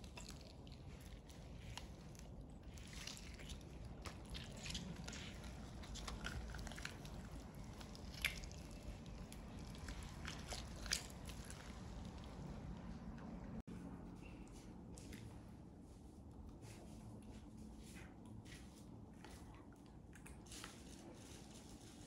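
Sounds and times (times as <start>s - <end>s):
chicken meat tearing wet squishing: 0.0s - 12.8s
small crackles: 0.0s - 13.3s.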